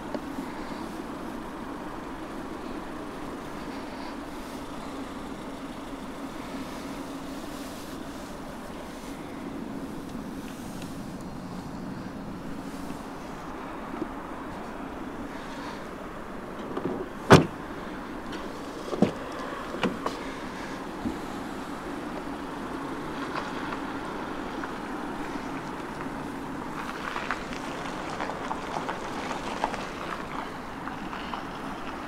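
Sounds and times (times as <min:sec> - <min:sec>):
steady background noise: 0:00.0 - 0:32.0
car being handled clicks: 0:18.2 - 0:20.2.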